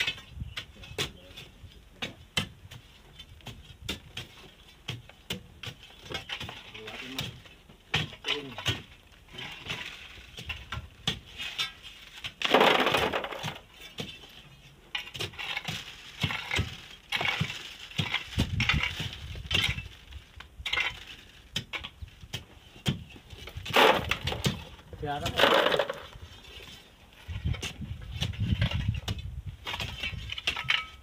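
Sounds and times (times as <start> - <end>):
sand and gravel sliding: 9.2 - 29.0.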